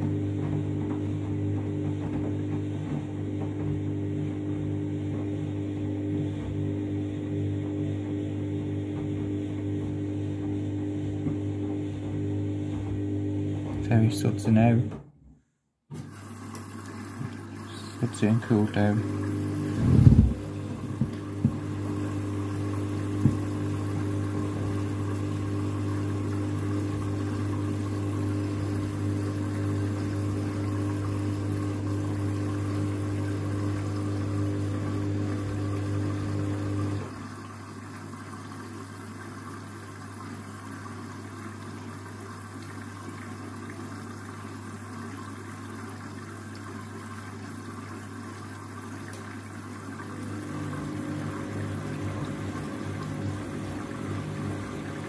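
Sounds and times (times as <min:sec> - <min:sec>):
drain pump running: 0:00.0 - 0:15.0, 0:15.9 - 0:55.0
washing machine electric hum: 0:00.0 - 0:15.2, 0:15.9 - 0:55.0
water swishing in drum: 0:15.9 - 0:55.0.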